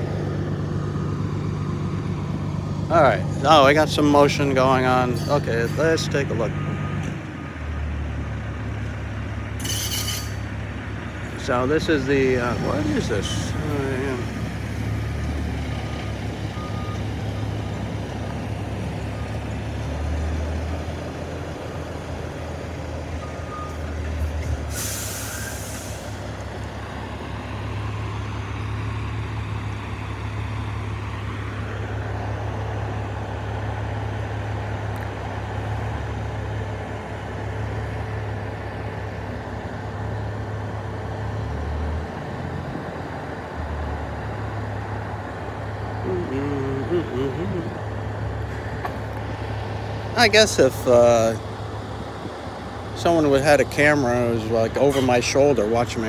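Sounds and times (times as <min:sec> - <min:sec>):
diesel crane truck running: 0:00.0 - 0:56.0
air brakes hissing: 0:09.6 - 0:10.4, 0:24.6 - 0:26.2.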